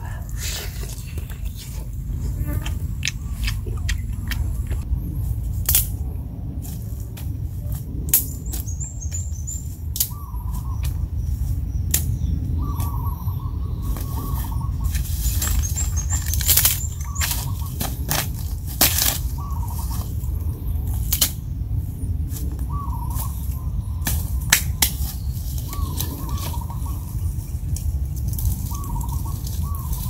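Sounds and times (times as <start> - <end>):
small birds chirping: 0.0 - 4.9, 8.2 - 30.0
steady low rumble: 0.0 - 30.0
sticks snapping and crackling: 2.6 - 4.8, 5.6 - 6.0, 6.7 - 8.7, 9.9 - 11.0, 11.9 - 12.2, 13.9 - 21.4, 22.3 - 30.0.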